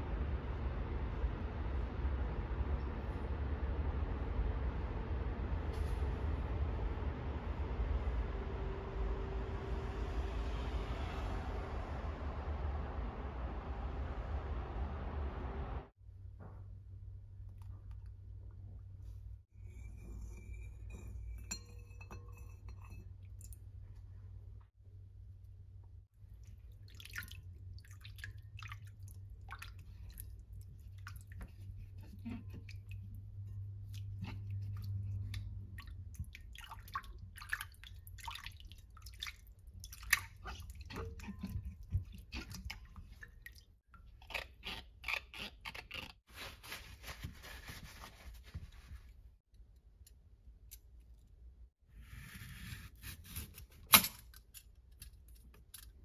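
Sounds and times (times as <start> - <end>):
water splashing in a glass bowl: 33.8 - 43.7
peeler scraping cucumber: 44.1 - 46.5, 52.0 - 53.9.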